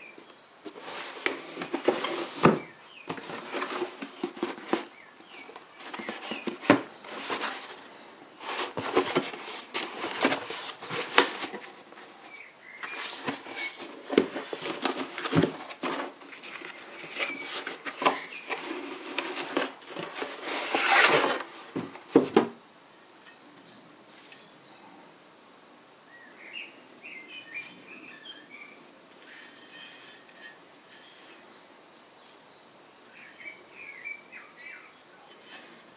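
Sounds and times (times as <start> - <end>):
cardboard box scraping and rustling: 0.6 - 22.5
rotor sliding out of box: 17.2 - 21.5.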